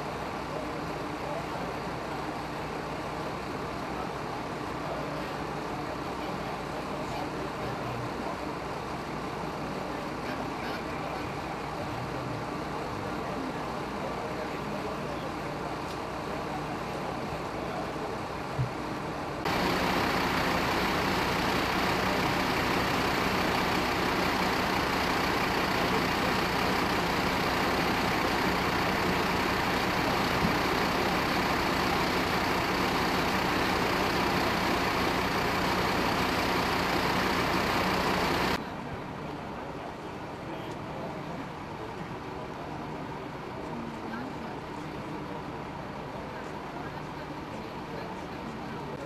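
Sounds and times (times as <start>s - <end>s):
diesel engine idling: 0.0s - 38.7s
quiet engine rumble: 0.0s - 49.0s.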